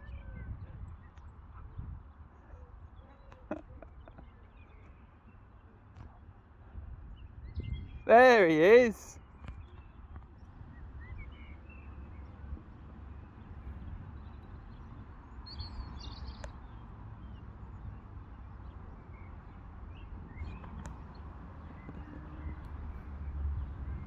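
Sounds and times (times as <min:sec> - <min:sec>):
wind on microphone: 0:00.0 - 0:04.2, 0:06.6 - 0:08.1.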